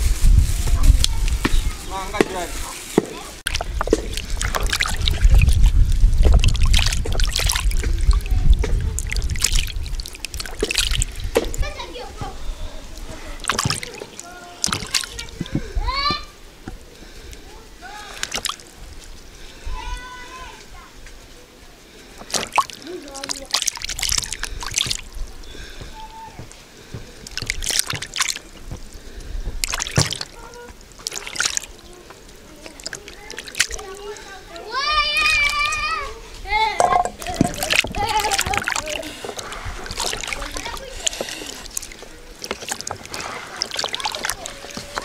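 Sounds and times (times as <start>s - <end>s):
water splashing in a basin: 0.4s - 12.3s, 12.9s - 16.0s, 17.3s - 19.5s, 22.1s - 45.0s
steady low rumble: 3.4s - 11.3s.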